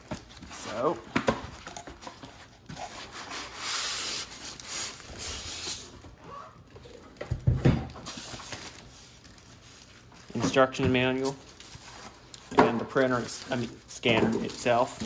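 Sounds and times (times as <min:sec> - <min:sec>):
cardboard packaging rubbing: 0:02.0 - 0:06.0.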